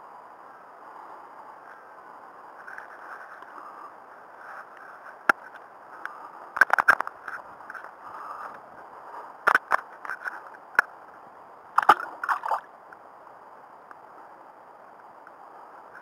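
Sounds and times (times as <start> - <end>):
faint background hiss: 0.0 - 16.0
fish splashing in water: 11.8 - 12.7.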